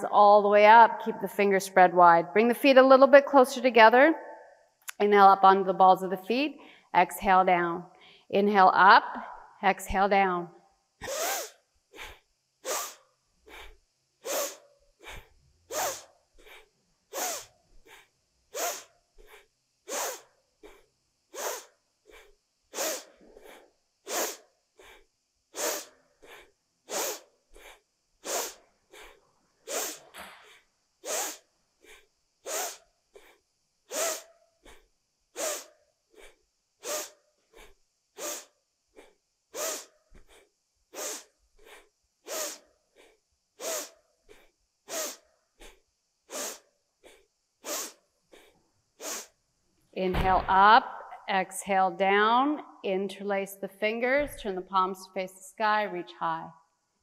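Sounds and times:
woman breathing forcefully: 6.6 - 6.9, 11.0 - 49.4.

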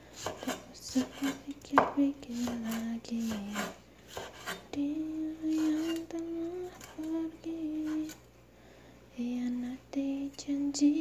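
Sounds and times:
cleaver chopping on wooden board: 0.2 - 2.6, 3.2 - 4.6
woman humming: 4.8 - 8.2.

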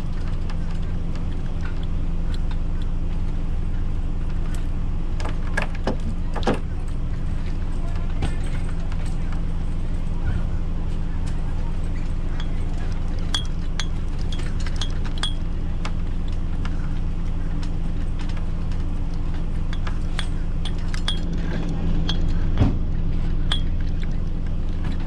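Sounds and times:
low engine hum: 0.0 - 25.0
metallic clinks of rigging: 11.8 - 15.7, 19.2 - 22.6, 23.3 - 25.0.

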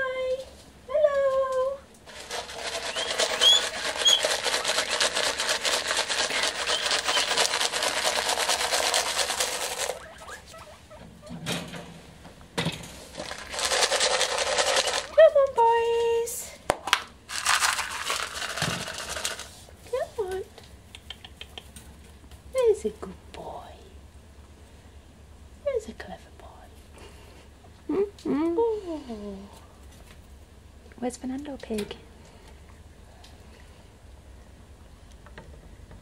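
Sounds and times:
fast crackling rustle: 2.0 - 10.7, 13.1 - 15.2, 17.3 - 20.2
guinea pig squealing: 2.1 - 11.3, 13.3 - 15.4.

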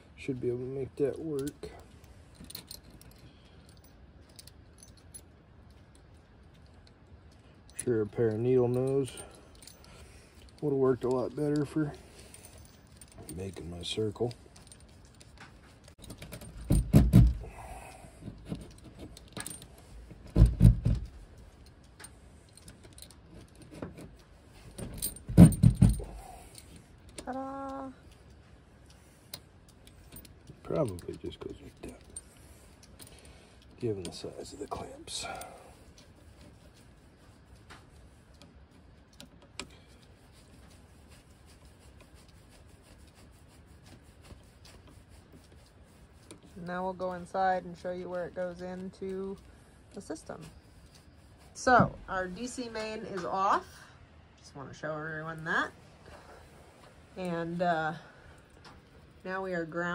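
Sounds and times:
metal wire and clamp clinking: 1.0 - 43.2.

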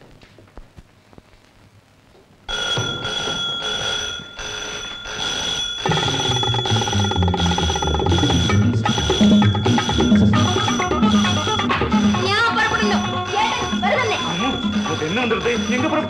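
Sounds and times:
electric alarm bell ringing: 2.5 - 16.0
film music with bass line: 5.9 - 16.0.

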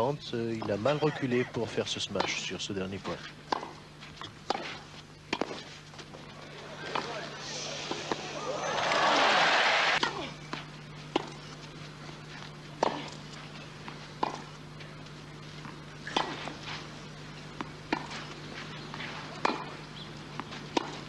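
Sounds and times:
low steady hum: 0.0 - 21.0
tennis ball bouncing: 2.2 - 2.5, 3.5 - 5.7, 6.6 - 9.0, 10.0 - 11.4, 12.8 - 13.1, 13.8 - 14.5, 15.6 - 16.7, 17.6 - 18.3, 18.9 - 21.0
tennis ball struck by racket: 16.0 - 16.6, 17.6 - 18.2, 19.4 - 19.8, 20.4 - 21.0.

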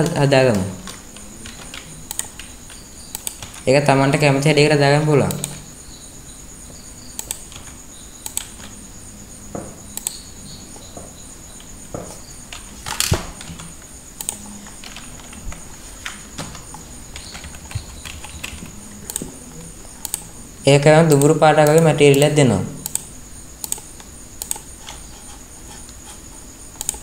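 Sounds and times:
faint hiss with high whine: 0.0 - 27.0
mouse and keyboard clicks: 0.8 - 3.6, 9.9 - 10.2, 11.6 - 19.4, 20.0 - 20.3, 21.1 - 26.0, 26.8 - 27.0.

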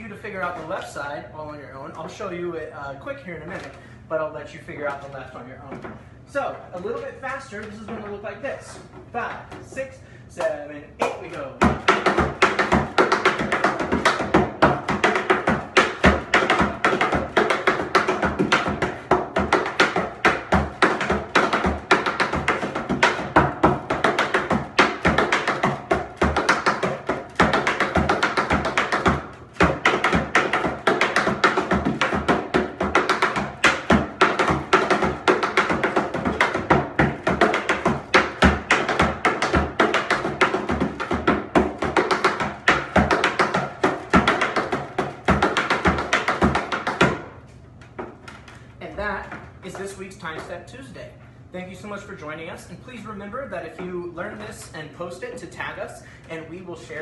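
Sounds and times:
tap shoes striking a board: 10.4 - 48.6, 49.2 - 50.5.

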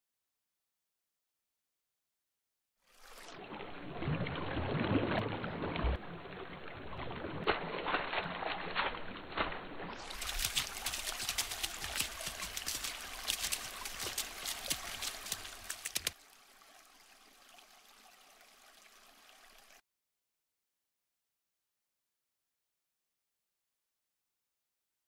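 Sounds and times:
water splashing and gurgling: 2.9 - 19.8.

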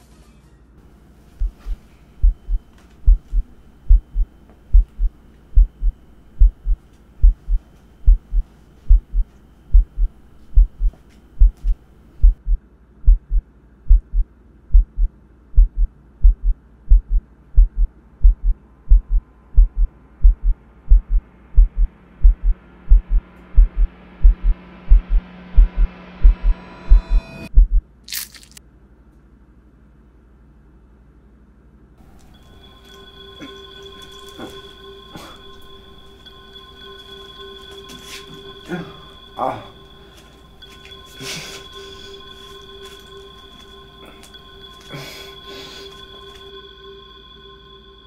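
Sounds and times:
low hum: 0.8 - 28.6, 32.0 - 48.0
heartbeat thumps: 1.4 - 27.9.

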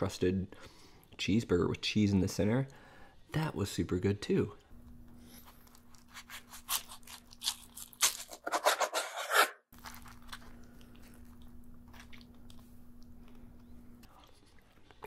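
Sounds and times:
knife cutting crunchy burger: 5.4 - 10.5.

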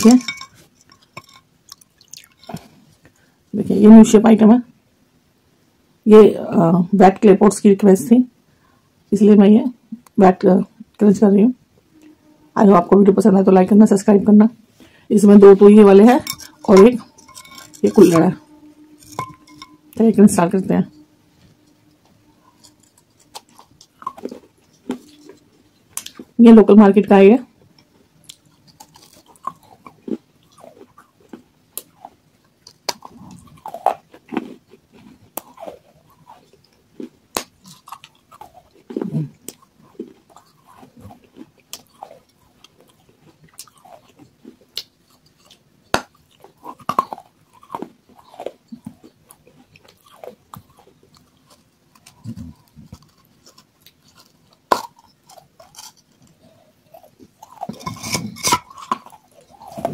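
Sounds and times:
soft chewing: 0.0 - 3.5, 14.7 - 26.4, 27.4 - 59.9.

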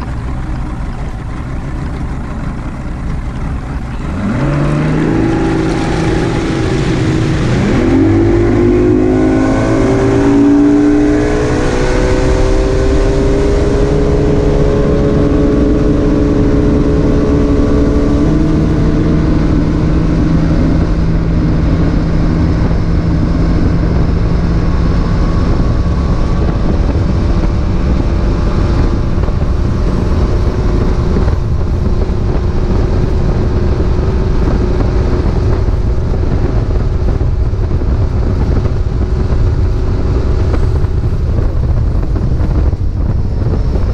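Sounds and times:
outboard motor speeding up: 0.0 - 43.9
rush of wind and water: 0.0 - 43.9.

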